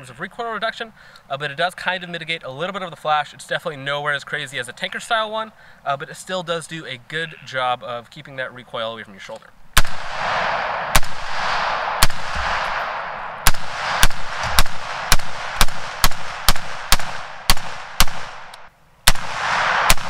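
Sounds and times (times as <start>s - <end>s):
rifle gunshots with echo: 9.8s - 20.0s.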